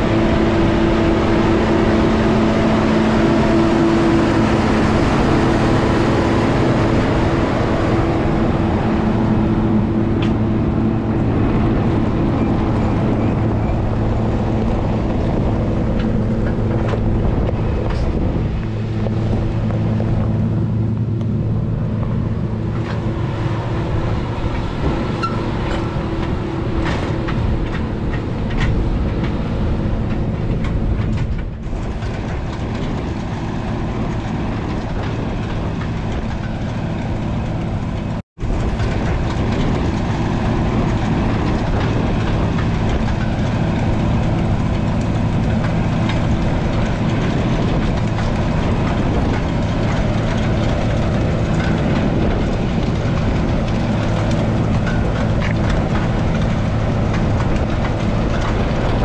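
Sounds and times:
tractor diesel engine running: 0.0 - 59.0
rattles and clanks of metal gear: 23.8 - 59.0.

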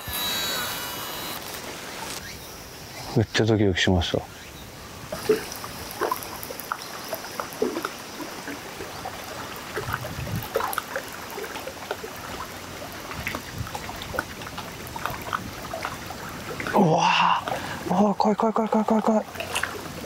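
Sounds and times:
water lapping against boat hull: 4.9 - 20.0.

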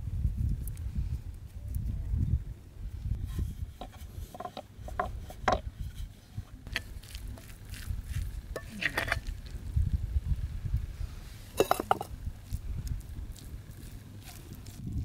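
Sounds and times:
spoon scraping metal bowl: 3.2 - 9.5, 11.5 - 12.1
spoon stirring moist mixture: 11.5 - 14.8.

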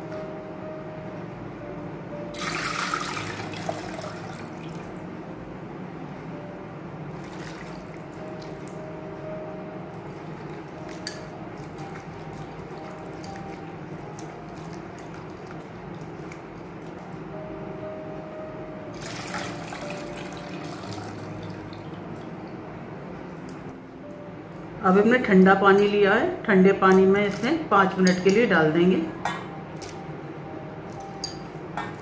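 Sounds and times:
water poured through strainer: 2.4 - 4.5, 19.0 - 21.6.

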